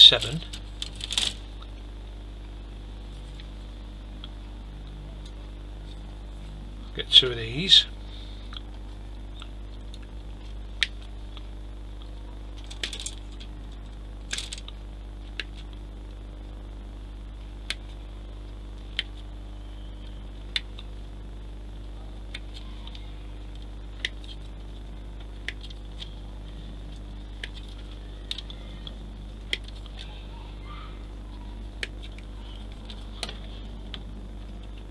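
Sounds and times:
low electrical hum: 0.0s - 34.9s.

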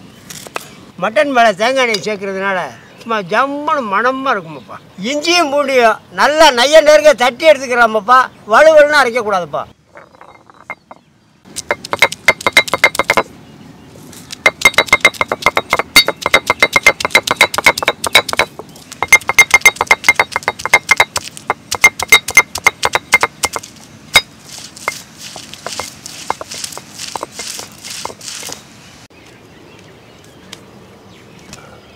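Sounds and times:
stone roller knocking on stone slab: 9.9s - 11.0s, 11.6s - 13.3s, 14.4s - 28.6s.

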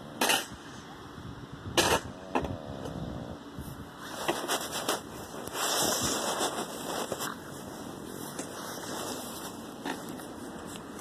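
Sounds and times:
phone microphone bumped and rubbed: 3.6s - 11.0s
small scrapes and clicks: 4.0s - 7.6s.

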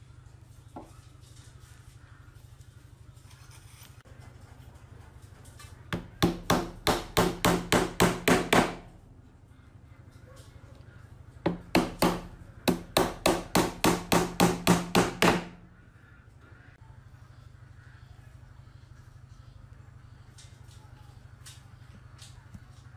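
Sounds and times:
steady low hum: 0.0s - 22.9s
hammer driving nails into wood: 11.5s - 15.6s.

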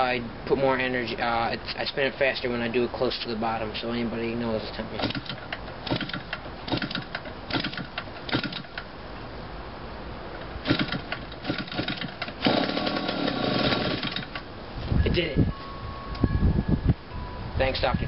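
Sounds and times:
small engine running with rattle: 5.0s - 8.8s, 10.6s - 14.4s
engine clicks and pops: 5.0s - 8.9s, 10.4s - 14.5s.

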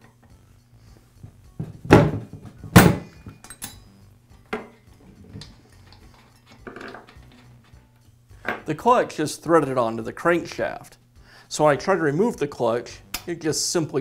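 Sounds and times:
metal socket clinks and knocks: 2.7s - 8.6s.

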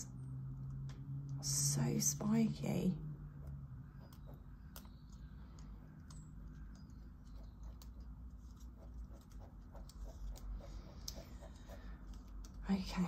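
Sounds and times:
pen scratching on paper: 7.4s - 12.3s.

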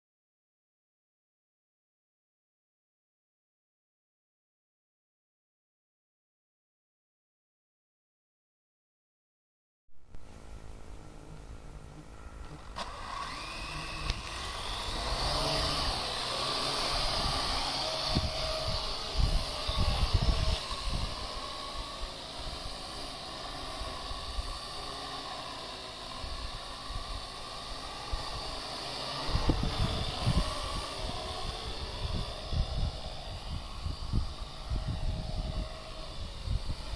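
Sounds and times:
drone propeller whine: 10.1s - 36.9s
wind rumble on microphone: 13.3s - 22.9s, 29.2s - 36.9s.

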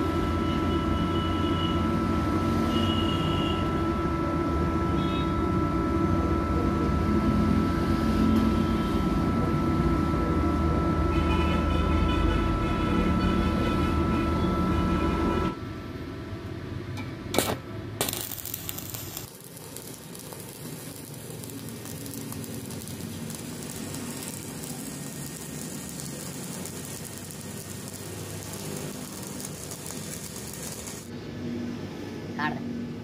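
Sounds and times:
welding arc crackling and sizzling: 17.2s - 31.2s.

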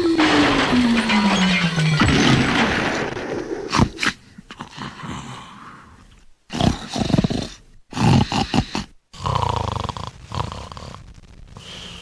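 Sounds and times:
animal growling: 3.7s - 12.0s.

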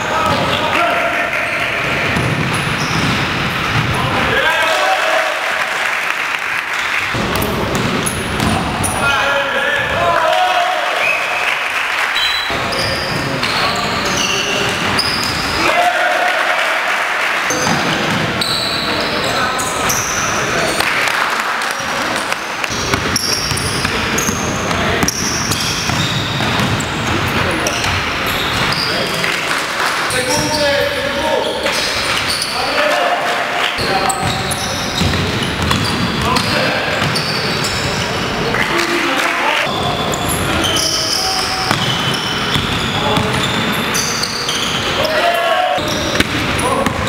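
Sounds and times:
basketball bouncing: 1.9s - 4.0s, 22.2s - 28.8s, 34.2s - 37.8s, 41.6s - 43.8s, 45.8s - 47.0s
sneakers squeaking on court: 1.9s - 4.1s, 7.4s - 9.0s, 12.2s - 15.6s, 17.5s - 21.0s, 21.8s - 29.3s, 30.1s - 32.6s, 33.7s - 38.4s, 39.7s - 45.2s, 45.8s - 47.0s.

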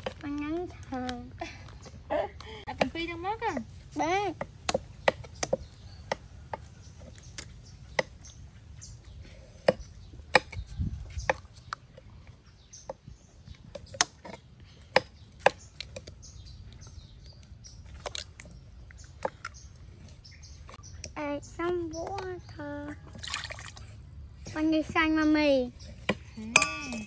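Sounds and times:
bowls and utensils clinking: 26.4s - 27.0s.

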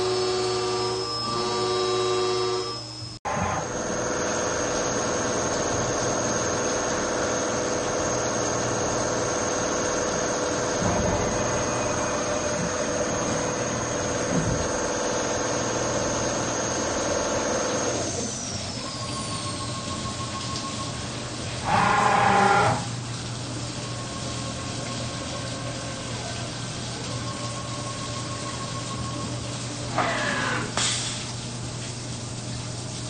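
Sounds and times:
cnc machine cutting metal: 0.0s - 20.2s, 21.6s - 23.0s, 27.1s - 30.8s
high machine whine: 0.0s - 31.1s.

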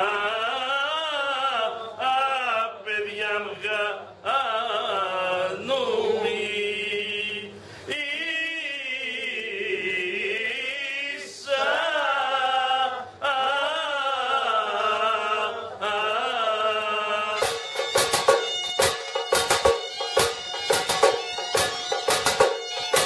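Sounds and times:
drum struck hard: 17.4s - 23.0s.

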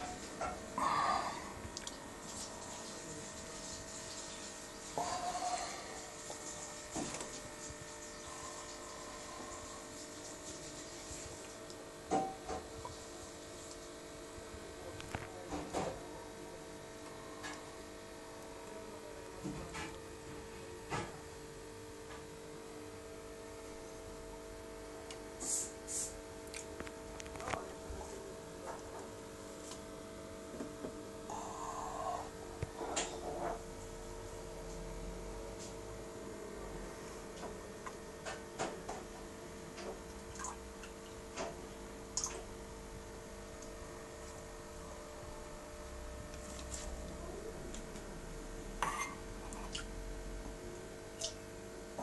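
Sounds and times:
electrical hum of equipment: 0.0s - 52.0s
short high hisses: 25.4s - 26.2s.

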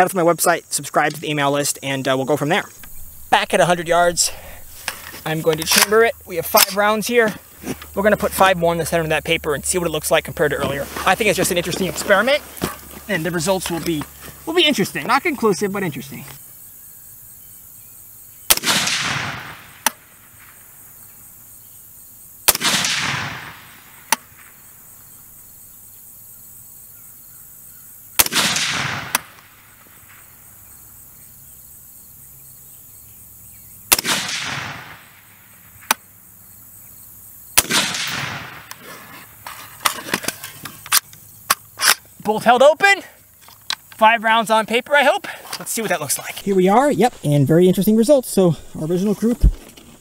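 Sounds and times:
rifle shots with rolling echo: 18.5s - 20.8s, 22.5s - 24.8s, 28.2s - 30.4s, 33.9s - 35.9s, 37.6s - 38.7s.

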